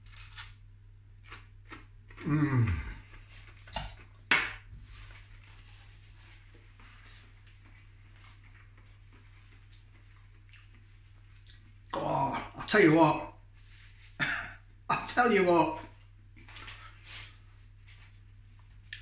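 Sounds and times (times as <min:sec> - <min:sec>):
person humming while eating: 0:02.2 - 0:03.1.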